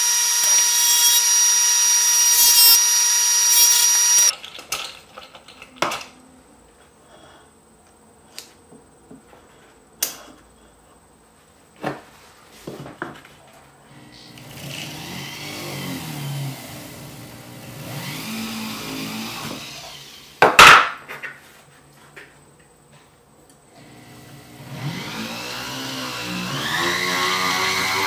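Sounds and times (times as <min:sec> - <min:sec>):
rotary tool motor buffing: 0:00.0 - 0:04.3, 0:23.8 - 0:28.0.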